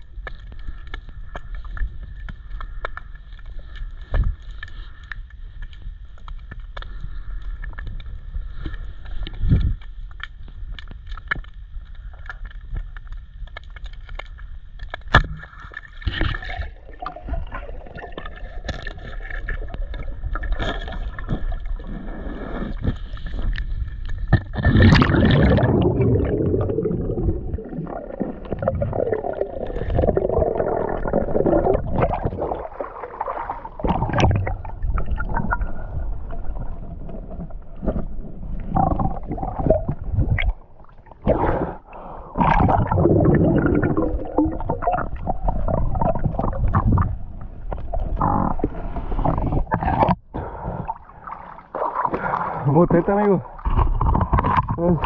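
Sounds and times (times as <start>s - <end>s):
churning bubbles: 15.1s - 55.0s
muffled underwater gurgling: 24.3s - 55.0s.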